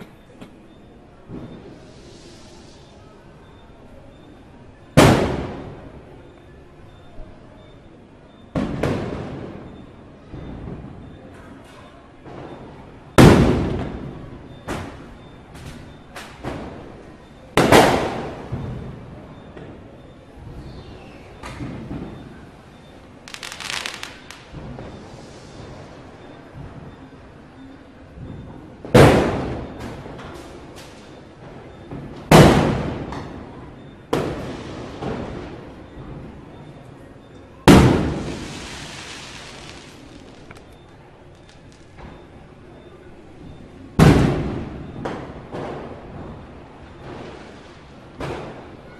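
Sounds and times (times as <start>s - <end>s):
firecrackers banging: 1.3s - 2.8s, 5.0s - 6.0s, 8.5s - 11.1s, 12.2s - 17.0s, 17.6s - 19.2s, 23.2s - 26.9s, 28.2s - 36.5s, 37.7s - 42.4s, 44.0s - 48.8s
firecracker bangs with echo: 5.0s - 5.9s, 8.6s - 9.7s, 13.1s - 15.1s, 17.6s - 19.0s, 23.3s - 25.0s, 28.9s - 30.1s, 32.3s - 33.5s, 34.1s - 35.6s, 37.7s - 40.7s, 44.0s - 46.4s.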